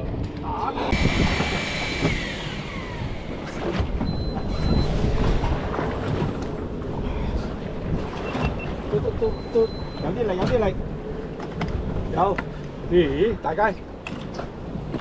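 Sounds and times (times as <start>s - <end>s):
wind buffeting microphone: 0.0s - 9.3s
sea and boat noise: 0.0s - 15.0s
falling whine: 0.6s - 5.0s.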